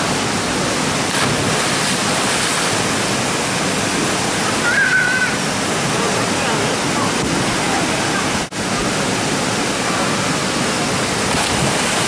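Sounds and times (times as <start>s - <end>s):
river water rushing in rapids: 0.0s - 12.0s.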